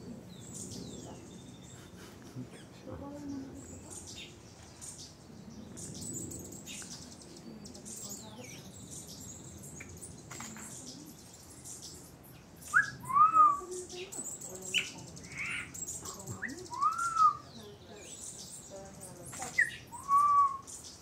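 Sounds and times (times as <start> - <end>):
faint high bird chirps: 3.6 - 21.0
loud whistled bird call: 12.6 - 13.7, 16.4 - 17.6, 19.6 - 20.8.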